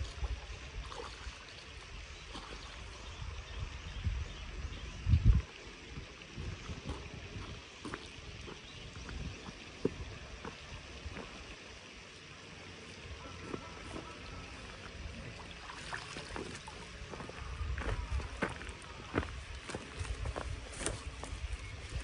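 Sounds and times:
outdoor background: 0.0s - 22.0s.

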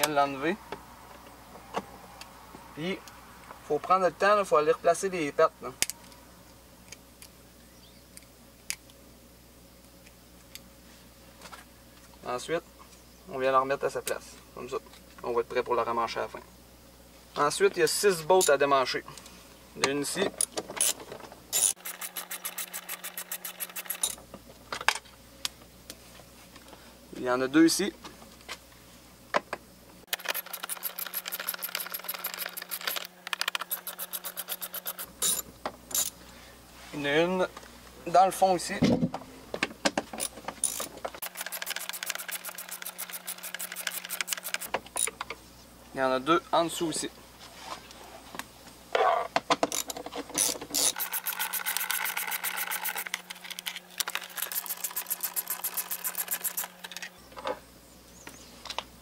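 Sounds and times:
ratchet wrench clicking: 20.8s - 24.2s, 30.1s - 36.2s, 40.2s - 45.1s, 49.7s - 53.2s, 54.0s - 56.7s.

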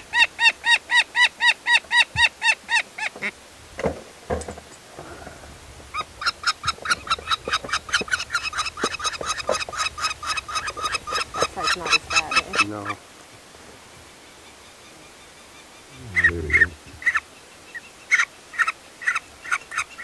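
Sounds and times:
soft handling knocks: 3.8s - 5.2s.

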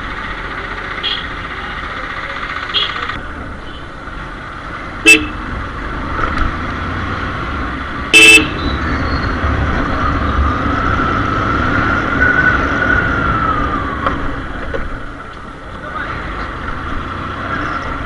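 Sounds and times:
engine and road rumble: 0.0s - 18.0s
motorcycle horn toots: 2.7s - 3.1s, 5.0s - 5.4s, 8.1s - 8.6s.

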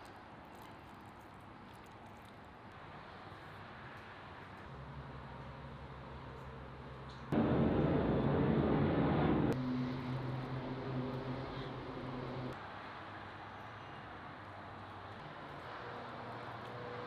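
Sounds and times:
engine humming: 7.0s - 12.6s.

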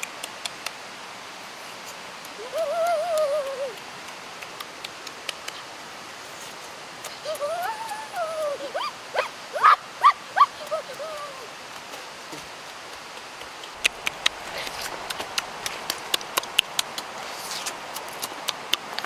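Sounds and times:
high yelping vocal sounds: 7.2s - 11.5s
wet chewing and lip-smacking: 13.2s - 19.0s.

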